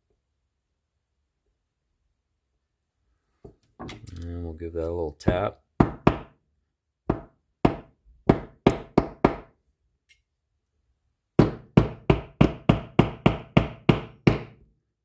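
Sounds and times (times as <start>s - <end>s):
hammer tapping a punch: 11.4s - 14.6s.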